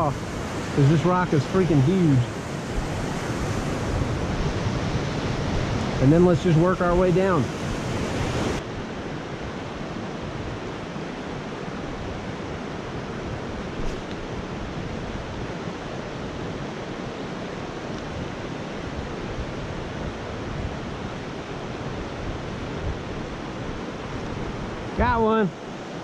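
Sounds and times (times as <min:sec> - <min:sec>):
stream flowing over rocks: 0:00.0 - 0:08.7.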